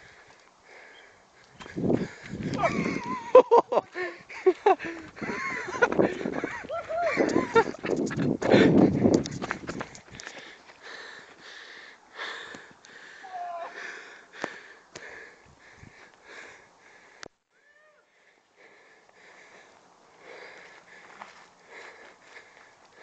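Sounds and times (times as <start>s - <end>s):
person panting hard: 0.0s - 17.4s, 18.0s - 23.0s.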